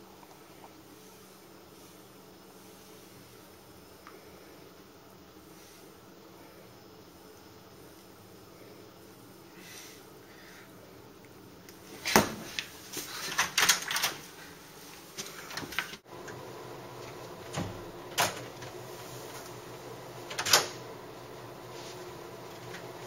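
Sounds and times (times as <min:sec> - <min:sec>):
door opening: 0:15.5 - 0:19.6, 0:20.2 - 0:21.0
door latching shut: 0:17.4 - 0:18.8, 0:20.3 - 0:20.8.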